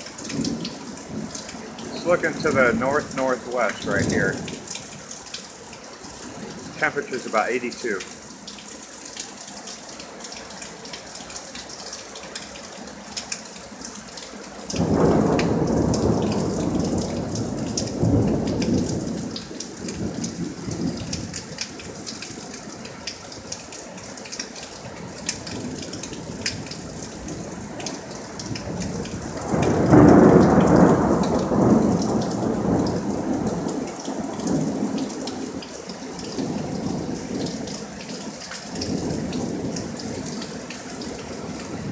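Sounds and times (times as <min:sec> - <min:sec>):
steady rain: 0:00.0 - 0:41.9
thunder rumbling: 0:00.3 - 0:04.7, 0:14.8 - 0:21.4, 0:28.4 - 0:37.5.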